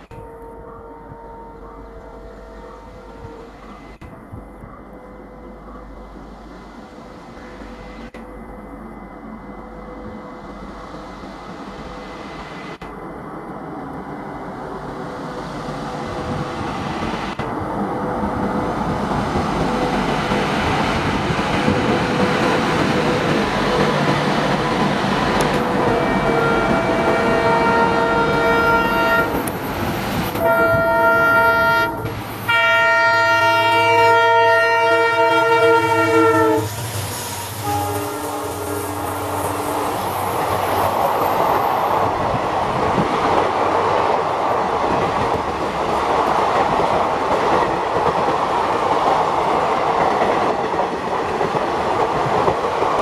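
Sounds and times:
train rumbling past: 0.0 - 53.0
locomotive horn blasts: 25.6 - 29.5, 30.4 - 36.7, 37.5 - 39.7.

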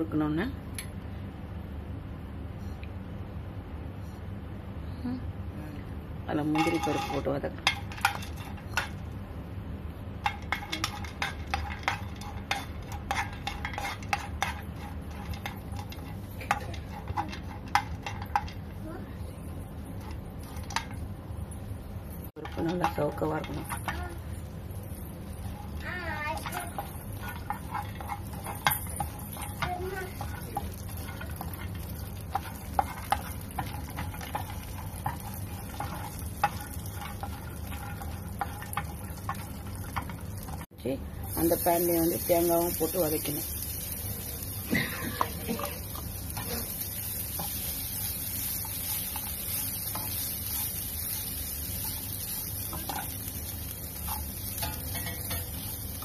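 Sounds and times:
steady low hum: 0.0 - 56.0
spatula clinking and scraping pan: 6.5 - 9.0, 10.2 - 18.7, 22.3 - 40.7, 41.3 - 56.0.

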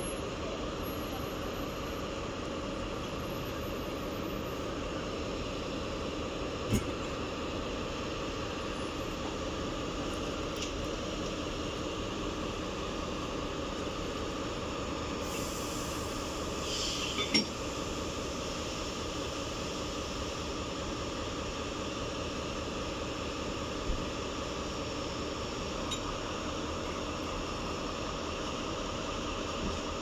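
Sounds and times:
locomotive humming: 0.0 - 30.0
air hiss: 15.2 - 17.3.

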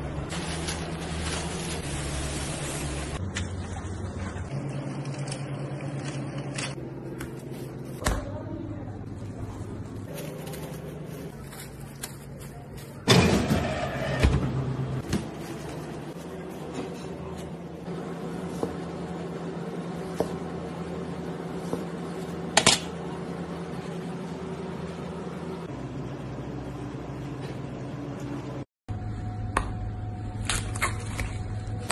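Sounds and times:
plastic wrap crinkling: 0.3 - 3.2, 10.0 - 13.1.

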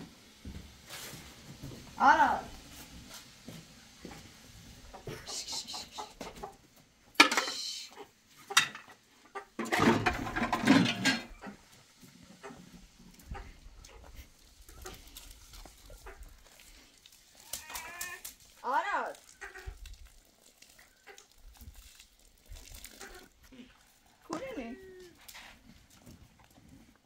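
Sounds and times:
chickens clucking and calling: 4.8 - 6.8, 7.9 - 16.5.

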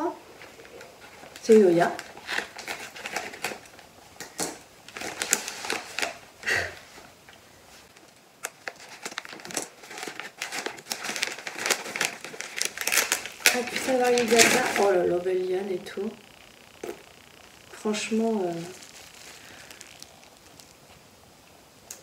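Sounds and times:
paper crumpling and tearing: 0.6 - 3.8, 4.4 - 6.2, 8.4 - 15.1, 17.8 - 21.0.

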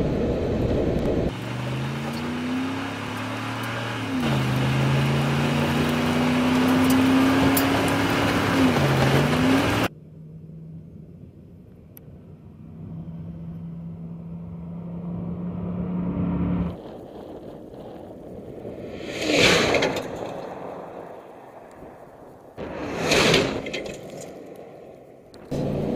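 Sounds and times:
rushing wind: 0.0 - 9.9, 16.4 - 25.9
truck engine running hard: 0.0 - 10.0.

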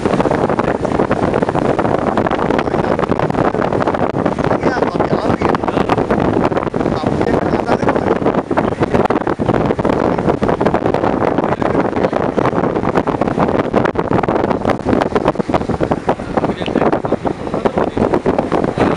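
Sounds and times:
wind buffeting microphone: 0.0 - 18.9.

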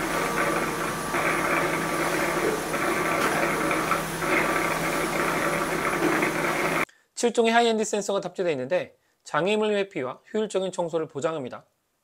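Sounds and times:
robot vacuum station motor whirr: 0.0 - 6.8.

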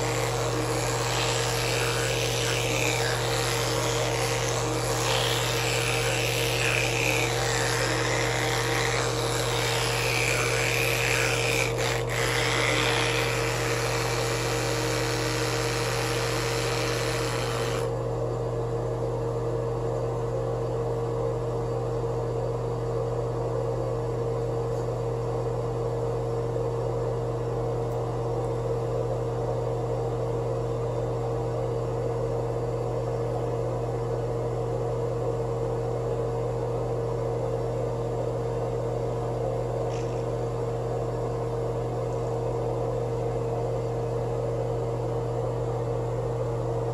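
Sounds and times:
electric toothbrush buzzing: 0.0 - 18.0.

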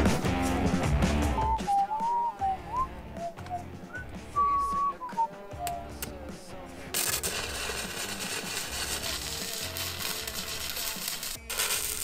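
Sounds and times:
background music: 0.0 - 12.0
welding arc crackling and hissing: 6.9 - 12.0.

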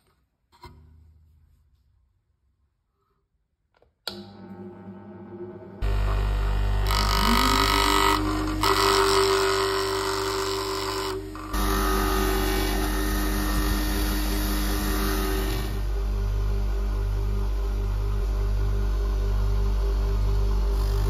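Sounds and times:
bench grinder humming: 4.1 - 21.0
file scraping on grinding wheel: 5.8 - 15.8.

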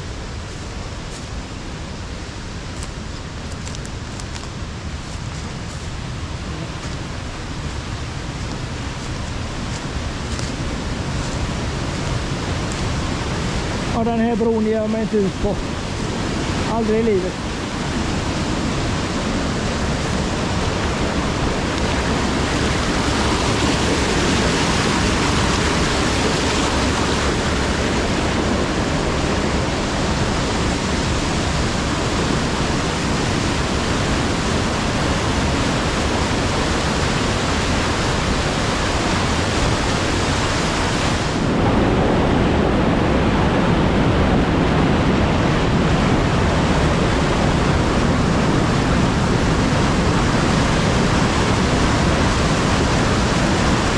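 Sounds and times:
whitewater rushing over rocks: 0.0 - 53.9.

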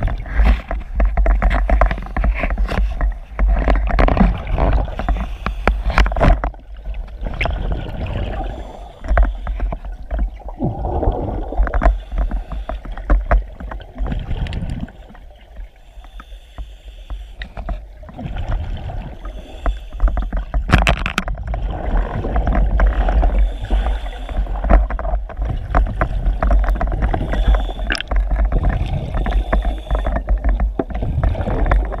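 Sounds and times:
underwater river current rumble: 0.0 - 32.0
bubbling surges: 7.2 - 8.8, 10.3 - 11.9.

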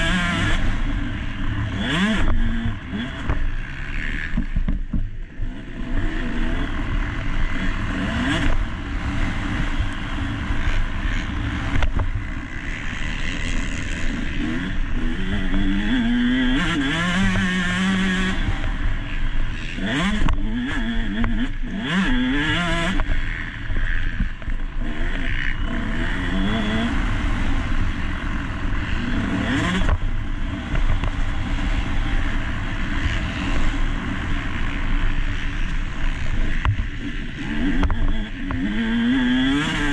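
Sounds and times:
motorbike engine revving: 0.0 - 39.9.

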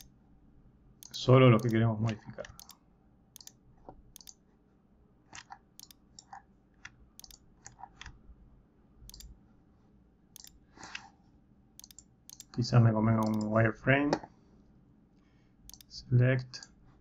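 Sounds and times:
computer mouse clicks: 1.0 - 2.8, 3.4 - 4.4, 5.3 - 8.2, 9.1 - 9.4, 10.4 - 11.1, 11.8 - 12.6, 13.2 - 13.5, 15.7 - 16.0.

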